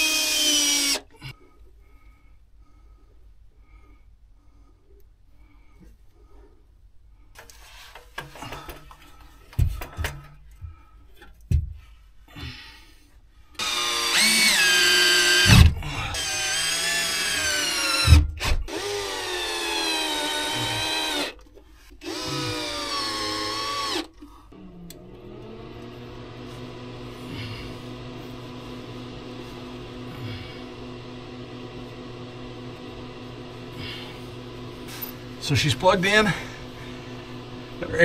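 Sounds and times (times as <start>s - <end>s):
cordless drill whining: 0.0s - 1.1s, 13.6s - 38.0s
knocks and thumps from handling: 7.9s - 10.4s, 11.5s - 11.9s.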